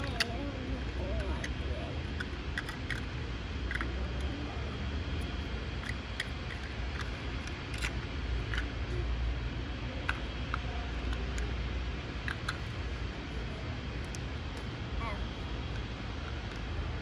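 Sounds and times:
plastic toys clicking on brick: 0.0s - 0.4s, 1.2s - 4.3s, 5.2s - 9.0s, 10.0s - 11.6s, 12.2s - 12.8s, 15.6s - 17.0s.

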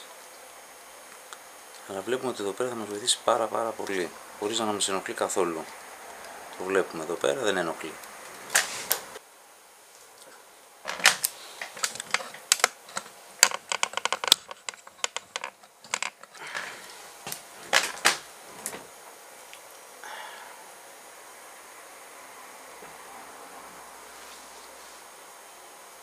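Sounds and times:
speargun parts clicking and knocking: 10.9s - 16.4s.

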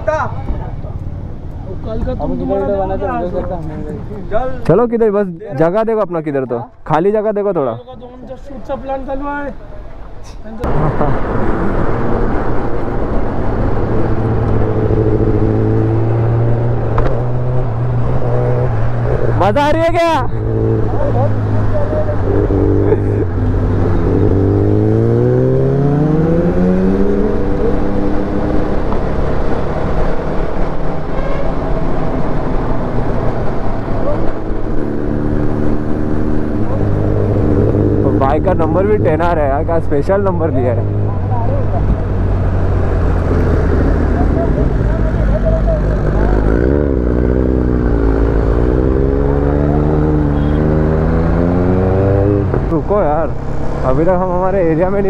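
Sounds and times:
wind and road rush: 0.0s - 55.0s
motorcycle engine accelerating: 10.6s - 19.6s, 20.4s - 39.7s, 40.6s - 55.0s.

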